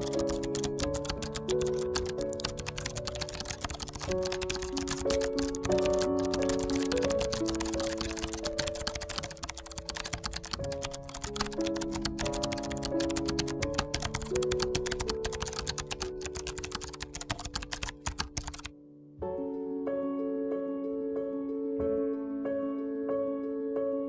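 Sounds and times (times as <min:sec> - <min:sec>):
rapid keyboard typing: 0:00.0 - 0:18.7
melodic background music: 0:00.0 - 0:24.0.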